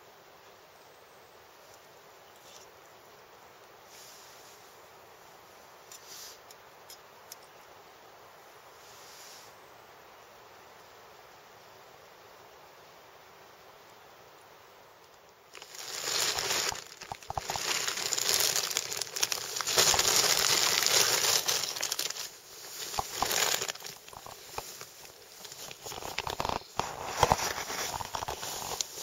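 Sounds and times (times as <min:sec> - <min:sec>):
synthetic fabric rustling: 0:15.5 - 0:29.0.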